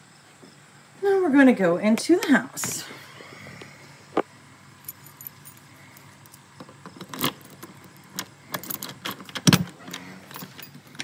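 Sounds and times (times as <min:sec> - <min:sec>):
keys jangling: 0:04.8 - 0:11.0
heavy lock clunk: 0:06.9 - 0:11.0.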